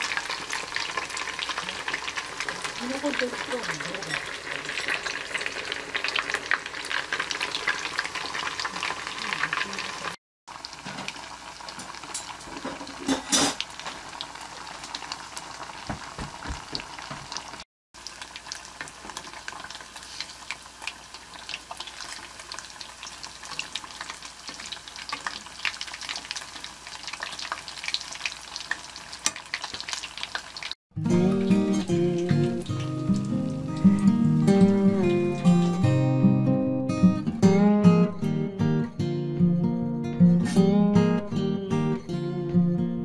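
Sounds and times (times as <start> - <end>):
fish cakes sizzling in hot oil: 0.0 - 30.8.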